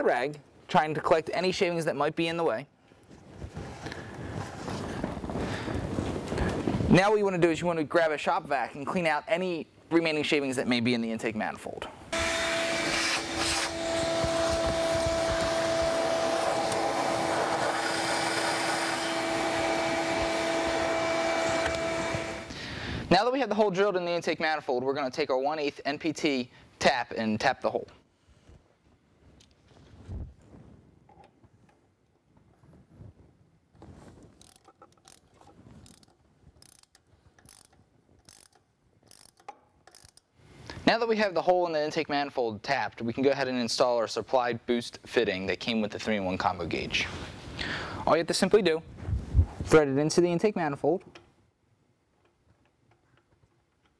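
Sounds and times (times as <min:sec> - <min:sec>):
shop vac humming: 0:12.1 - 0:23.1
tap wrench clicks: 0:34.4 - 0:35.2, 0:35.8 - 0:40.3.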